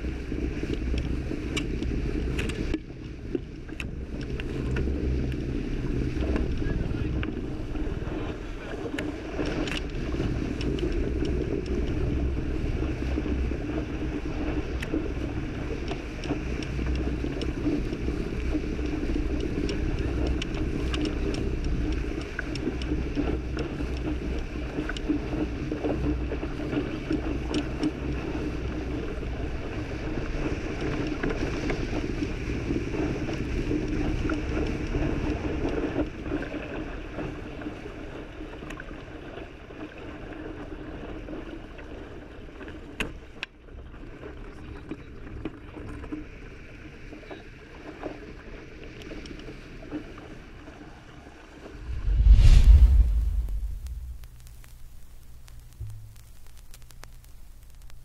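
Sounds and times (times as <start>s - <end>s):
wind noise: 0.0s - 27.2s, 51.6s - 58.0s
water rushing past a hull: 0.0s - 54.6s
faint ticks: 0.6s - 5.5s, 8.9s - 13.3s, 14.5s - 29.2s, 48.9s - 50.0s, 52.0s - 58.0s.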